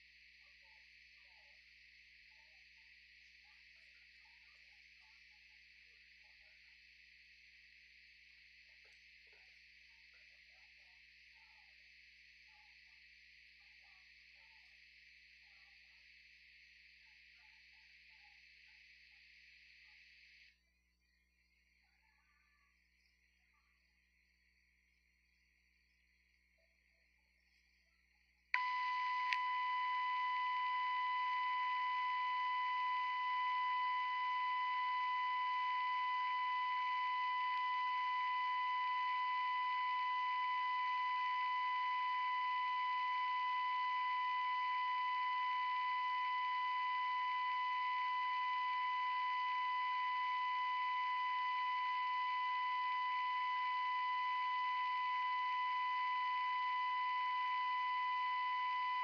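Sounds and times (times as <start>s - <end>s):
faint hiss: 0.0s - 53.4s
click: 8.8s - 9.6s, 28.6s - 59.0s.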